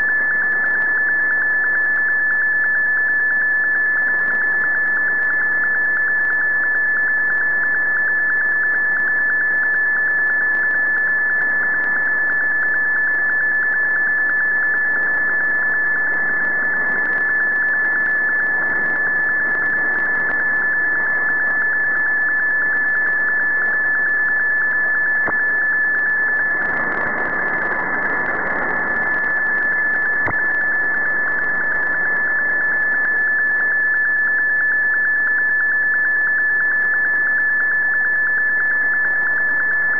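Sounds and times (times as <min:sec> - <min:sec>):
steady high radio tone: 0:00.0 - 0:39.9
click: 0:25.2 - 0:25.4, 0:30.2 - 0:30.6.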